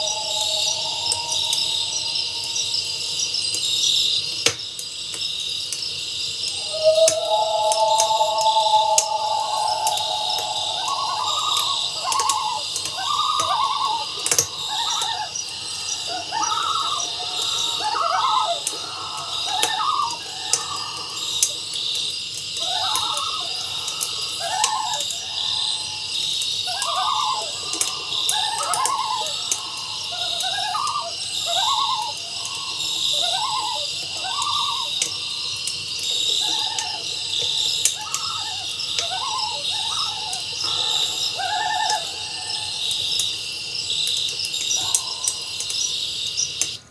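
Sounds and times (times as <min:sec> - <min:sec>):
high-pitched drone: 0:00.0 - 0:03.5, 0:06.5 - 0:21.2.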